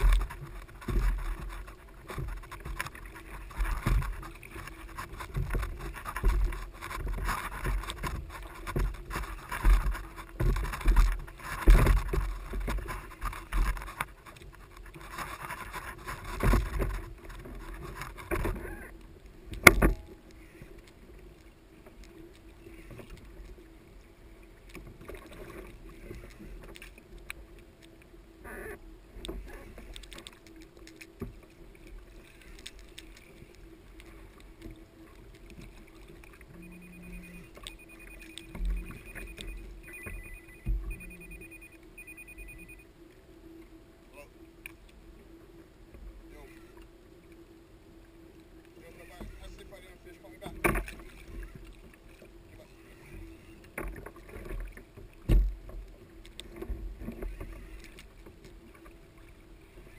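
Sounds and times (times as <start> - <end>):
water splashing against kayak hull: 0.0 - 59.9.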